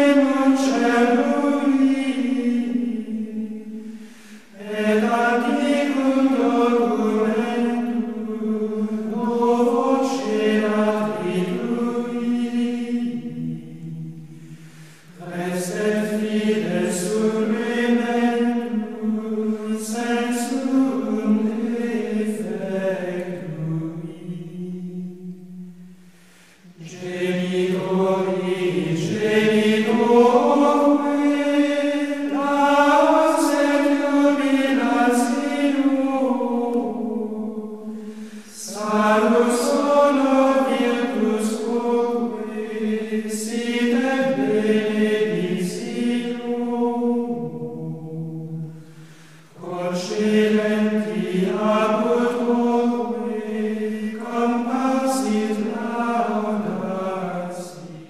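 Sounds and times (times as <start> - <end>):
choir singing long notes: 0.0 - 58.0
singers breathing: 3.7 - 4.6, 14.2 - 15.2, 25.8 - 26.8, 37.8 - 38.6, 48.6 - 49.6.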